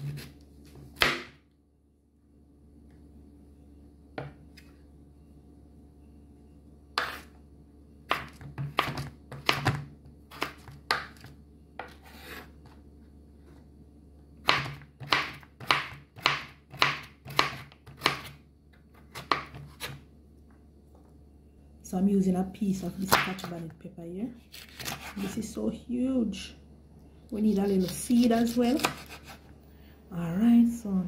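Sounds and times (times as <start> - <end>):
knife chopping on wooden board: 0.0 - 1.4, 7.0 - 7.3, 8.1 - 12.4, 14.4 - 18.4, 19.0 - 20.0, 24.5 - 25.3, 27.8 - 29.4.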